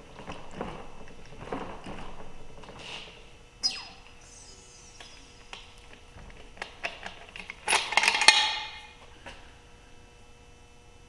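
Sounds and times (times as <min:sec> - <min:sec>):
sharp squeal falling in pitch: 0:03.6 - 0:05.6.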